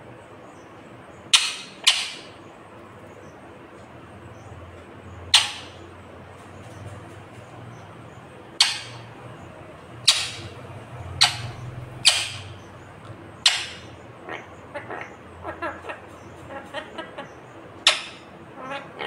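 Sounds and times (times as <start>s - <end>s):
parakeet squawks: 1.3s - 2.4s, 5.3s - 5.8s, 8.6s - 9.1s, 10.0s - 12.7s, 13.4s - 19.0s.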